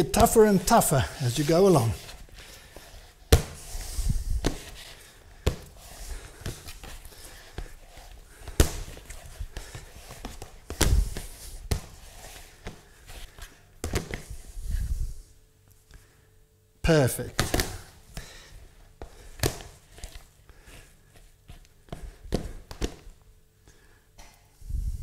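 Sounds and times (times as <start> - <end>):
dough thuds and slaps: 3.3 - 3.7, 8.4 - 12.0, 13.8 - 14.3, 17.3 - 18.3, 19.0 - 19.8, 21.8 - 23.2.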